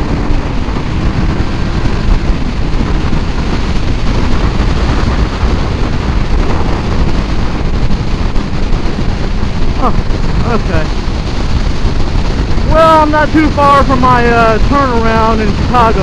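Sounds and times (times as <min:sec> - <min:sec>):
motorcycle engine: 0:00.0 - 0:16.0
road noise: 0:00.0 - 0:16.0
wind buffeting microphone: 0:00.0 - 0:16.0.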